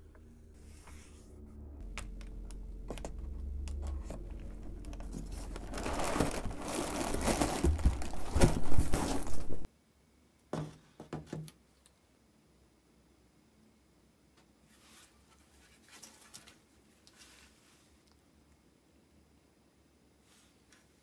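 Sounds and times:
packing material rustling: 2.8 - 9.7.

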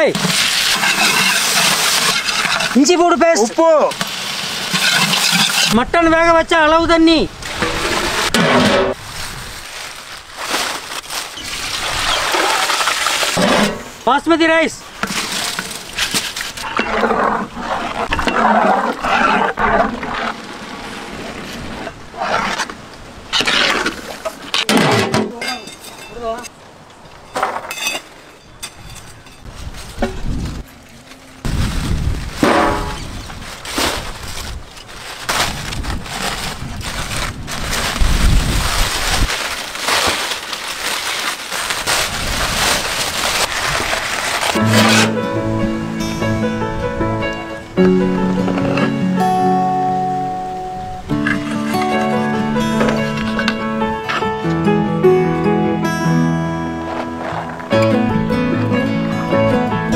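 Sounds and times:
aluminium foil crackling and tearing: 0.0 - 5.8, 8.9 - 13.4, 15.0 - 20.4, 29.5 - 45.2
ladle scraping a metal pot: 0.2 - 2.8, 4.0 - 5.8, 44.5 - 45.2.

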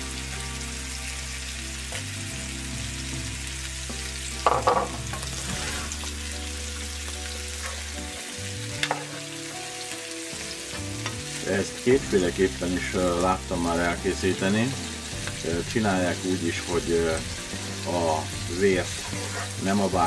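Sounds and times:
food sizzling in a pan: 0.0 - 20.0
soft background music: 0.0 - 20.0
wooden spatula scraping: 5.3 - 6.1, 7.6 - 8.1, 18.6 - 20.0.

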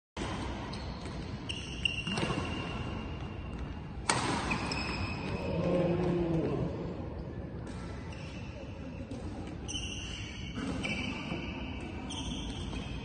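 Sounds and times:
shoes squeaking on floor: 0.7 - 2.8, 9.7 - 13.0.

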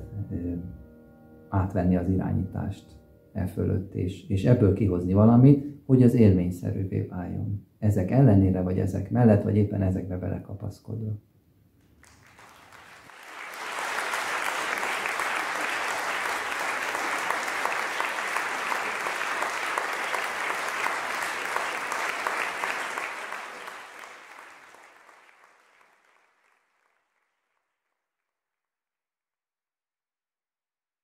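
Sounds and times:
audience applauding: 11.9 - 27.8.

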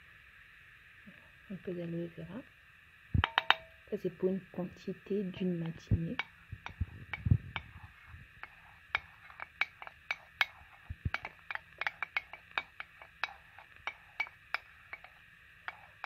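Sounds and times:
wooden spoon scraping ceramic plate: 6.2 - 16.0.

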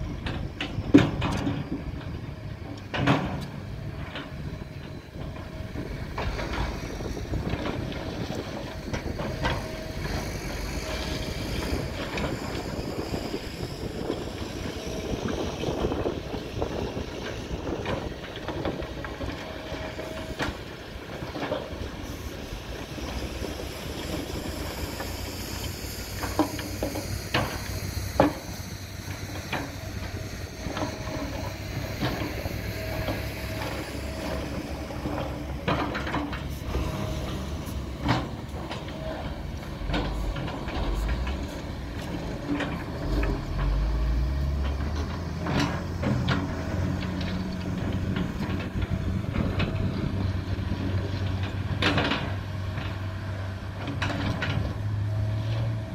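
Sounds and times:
excavator diesel engine running: 0.0 - 55.9
hydraulic hiss: 22.0 - 35.5.

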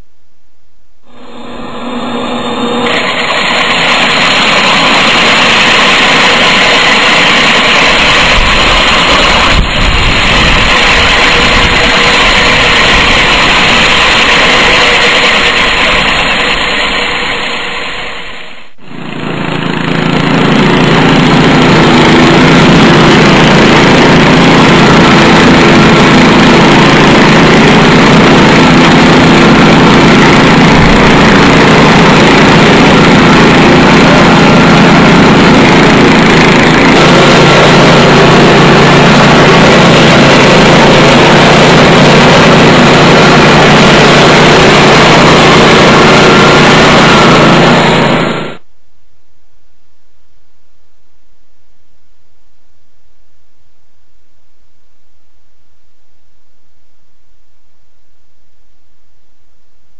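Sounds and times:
concrete floor grinder running: 1.1 - 48.7.

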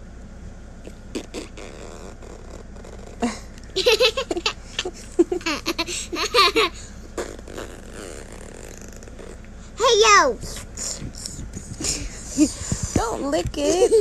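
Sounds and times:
child laughing: 3.2 - 6.9, 11.7 - 14.0.

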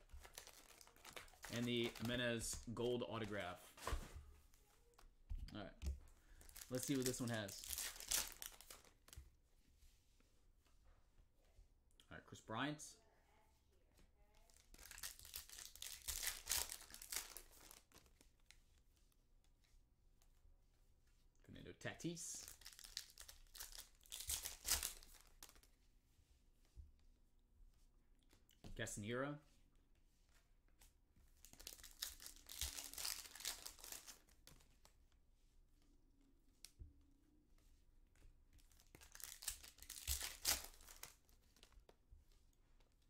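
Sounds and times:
foil wrapper tearing and crinkling: 0.1 - 2.2, 6.5 - 8.9, 14.8 - 17.8, 22.5 - 25.5, 31.6 - 34.3, 38.8 - 41.2.

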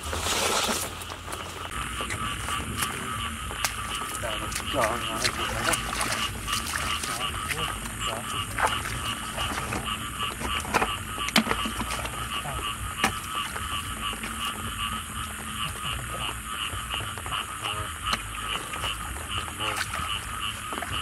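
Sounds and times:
constant high hiss: 0.0 - 21.0
frogs calling: 0.0 - 21.0
sharp knocks or splashes: 2.0 - 14.5.

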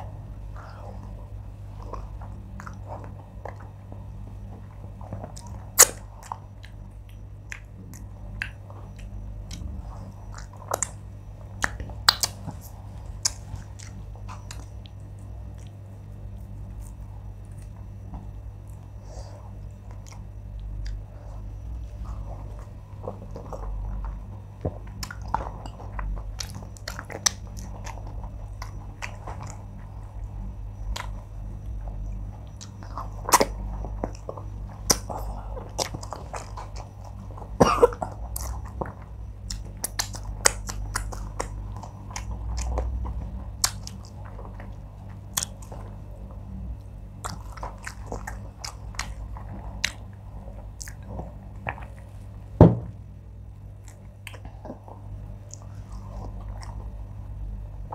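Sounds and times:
steady low hum: 0.0 - 57.9
chewing and lip smacking: 1.8 - 3.8, 4.6 - 52.4, 53.7 - 57.9.

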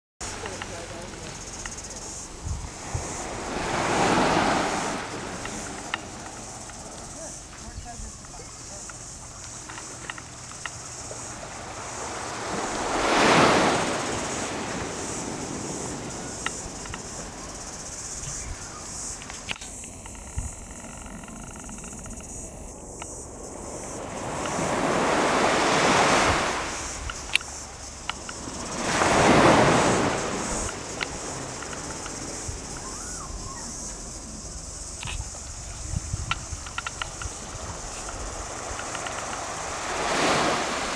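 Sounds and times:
small waves washing on beach: 0.2 - 18.1, 23.5 - 33.0, 33.8 - 40.9
faint clicks: 0.4 - 3.8, 4.9 - 10.8, 16.3 - 17.2, 19.1 - 23.2, 27.0 - 28.4, 30.6 - 32.9, 36.2 - 39.5.

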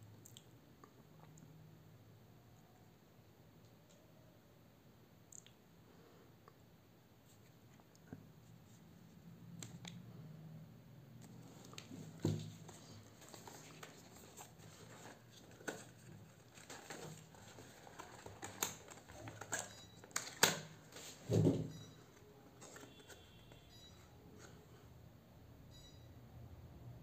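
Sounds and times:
cardboard box clicks and rustles: 12.1 - 20.4.

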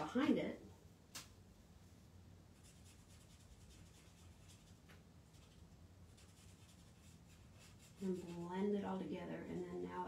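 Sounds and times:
low steady hum: 0.0 - 10.0
marker scratching on cardstock: 2.6 - 8.8.

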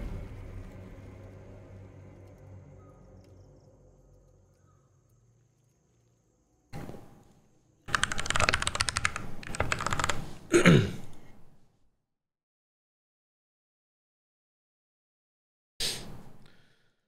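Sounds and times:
computer keyboard typing: 7.9 - 10.4.

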